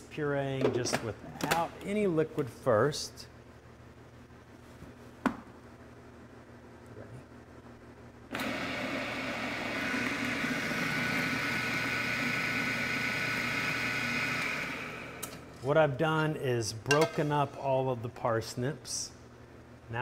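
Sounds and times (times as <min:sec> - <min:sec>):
food processor motor whining: 0:08.3 - 0:15.4.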